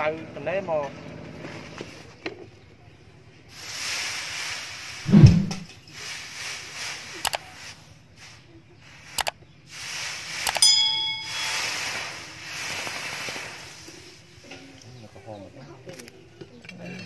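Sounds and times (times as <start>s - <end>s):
hot blade hissing in water: 9.7s - 14.0s
metallic ding: 10.6s - 12.4s.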